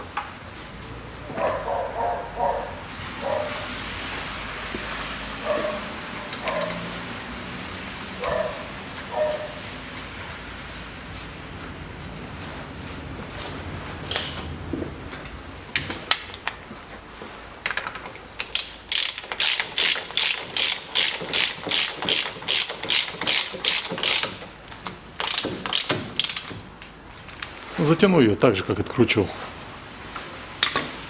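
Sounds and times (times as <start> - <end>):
tool clinks: 14.1 - 14.5
ratchet wrench clicking: 18.4 - 24.5, 25.2 - 26.6.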